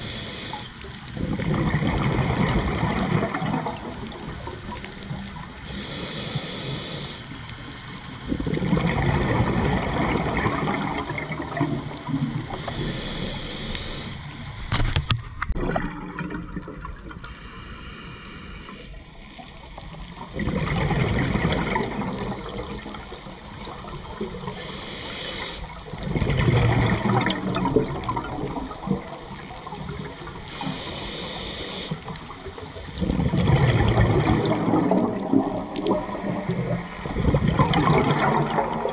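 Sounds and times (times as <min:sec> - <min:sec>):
regulator inhalation hiss: 0:00.0 - 0:00.8, 0:05.6 - 0:07.3, 0:12.5 - 0:14.3, 0:17.2 - 0:19.0, 0:24.5 - 0:25.8, 0:30.5 - 0:32.1
exhaust bubbles rushing: 0:01.2 - 0:04.1, 0:08.3 - 0:12.4, 0:20.3 - 0:23.0, 0:25.8 - 0:29.2, 0:32.9 - 0:38.9.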